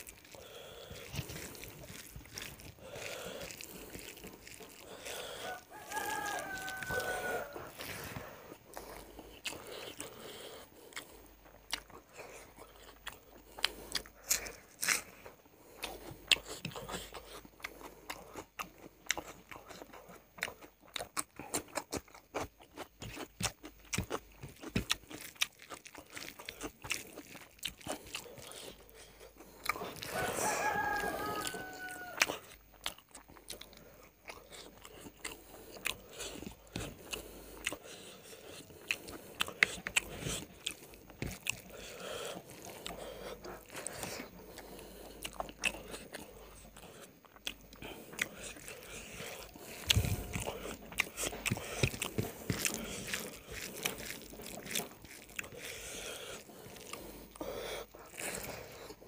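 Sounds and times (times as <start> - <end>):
wet chewing and smacking: 0.0 - 59.0
rooster crowing: 5.1 - 8.1, 29.8 - 32.5.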